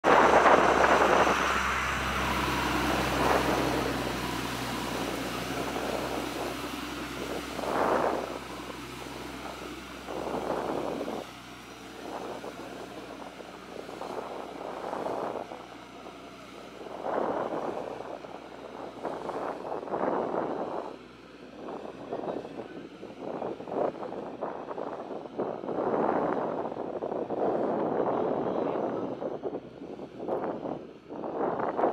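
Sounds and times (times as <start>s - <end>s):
rushing noise: 0.0s - 20.9s
motor humming: 0.0s - 26.8s.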